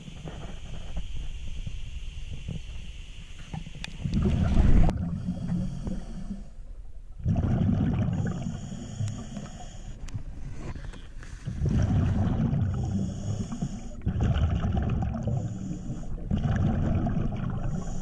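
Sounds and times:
muffled underwater rumble and bubbles: 0.0s - 18.0s
loud splash and churn of water: 14.1s - 15.4s.

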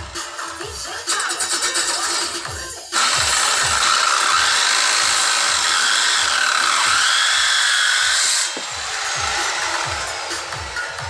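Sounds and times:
circular saw cutting wood: 0.0s - 11.0s.

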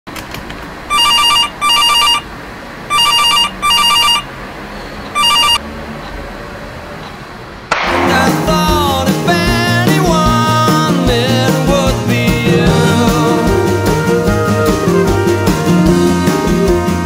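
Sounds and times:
telephone ringing: 0.9s - 2.3s, 2.9s - 4.3s, 5.1s - 5.6s
guitar-led music: 7.9s - 17.0s.

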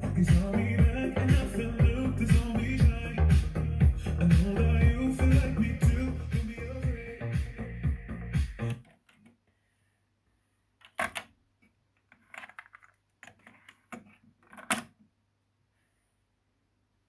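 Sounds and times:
music playback: 0.0s - 8.8s.

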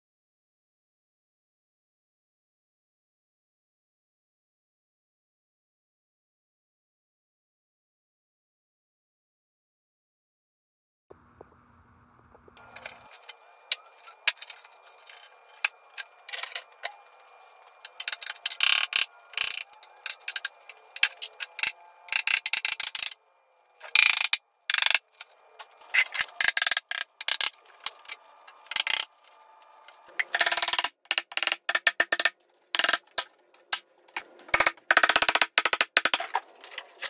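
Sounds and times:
hand tools clicking and scraping: 12.6s - 23.2s, 23.8s - 37.0s.

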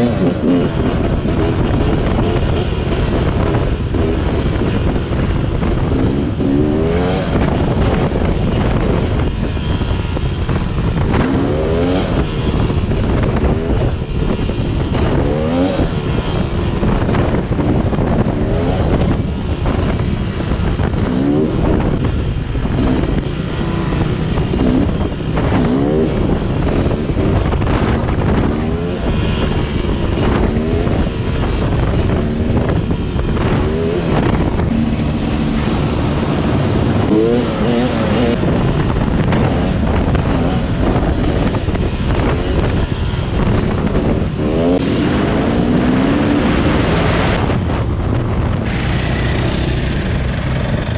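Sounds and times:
dirt bike engine revving: 0.0s - 5.0s, 33.4s - 47.4s
wind rush on camera: 0.0s - 50.9s.

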